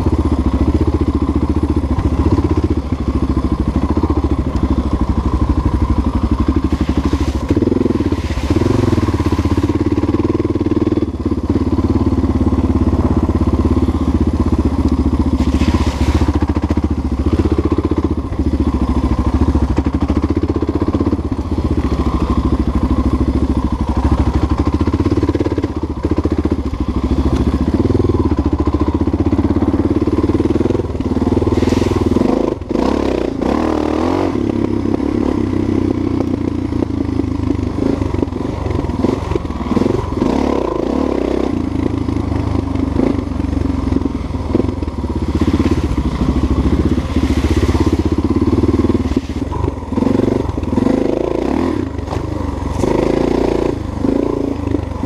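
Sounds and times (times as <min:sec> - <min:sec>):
motorcycle engine running: 0:00.0 - 0:55.0
thumps and clatter over bumps: 0:51.9 - 0:53.0.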